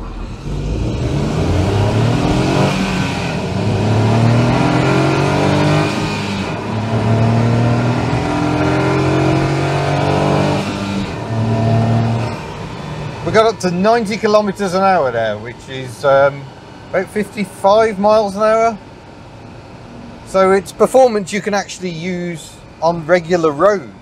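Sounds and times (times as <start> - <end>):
car engine accelerating: 0.0 - 15.7.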